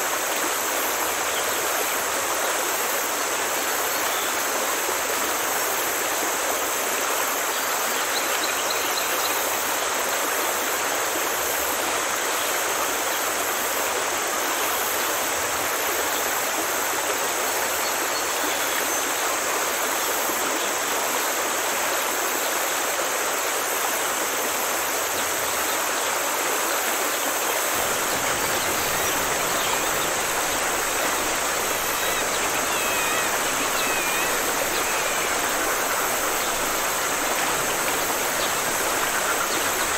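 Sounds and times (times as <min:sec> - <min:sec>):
rushing stream water: 0:00.0 - 0:39.9
faint bird chirps: 0:27.8 - 0:39.9.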